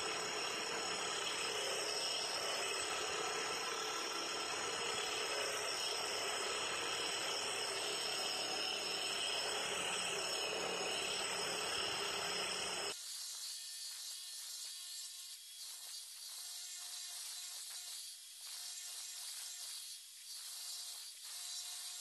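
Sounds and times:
router grinding stone: 0.0s - 12.9s.

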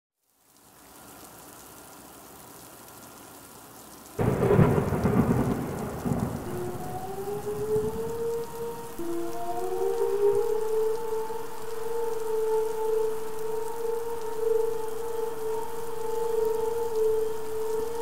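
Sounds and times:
steady rain: 0.2s - 18.0s
thunder clap and rumble: 4.2s - 10.7s.

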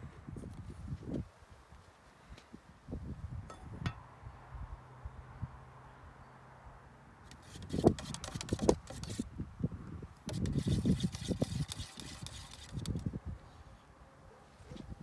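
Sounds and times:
stick stirring varnish in tin: 7.3s - 9.2s, 10.3s - 13.0s.

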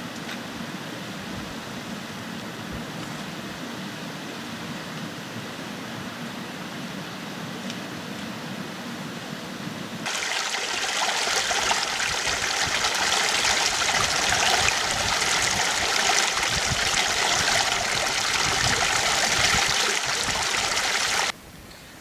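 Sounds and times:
creek rushing over rocks: 10.0s - 21.3s.

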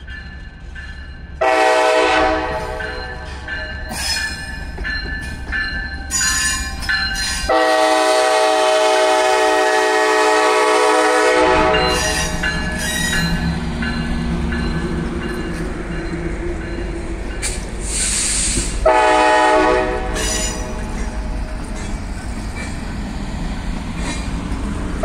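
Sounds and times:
passing train rumble: 0.0s - 25.0s
train horn blast: 1.4s - 3.1s, 7.5s - 12.2s, 18.8s - 20.8s.

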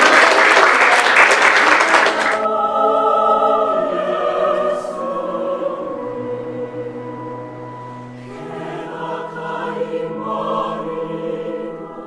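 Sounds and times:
congregation applauding: 0.0s - 2.5s
choir singing: 1.0s - 12.0s.

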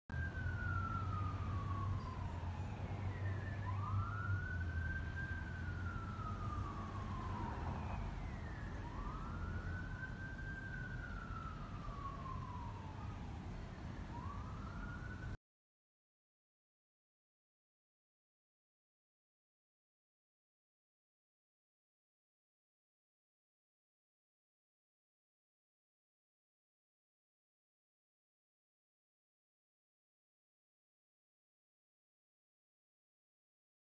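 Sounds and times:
emergency siren wailing: 0.1s - 15.4s.

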